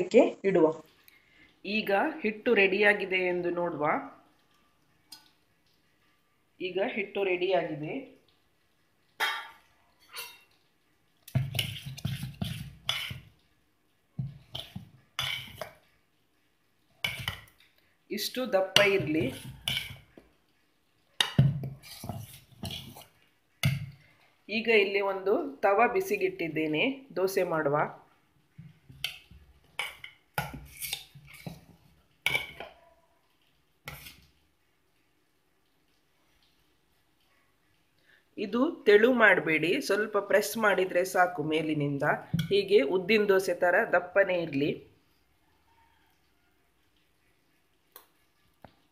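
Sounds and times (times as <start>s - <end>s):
ladle scraping steel vessel: 10.0s - 10.6s, 18.8s - 20.2s, 21.2s - 23.2s.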